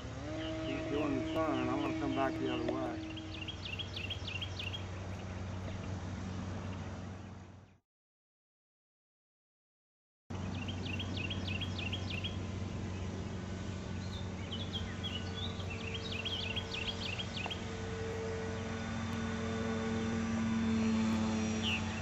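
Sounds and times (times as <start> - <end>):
model plane motor droning: 0.0 - 7.6, 10.4 - 22.0
high chirping trills: 0.4 - 5.6, 10.5 - 22.0.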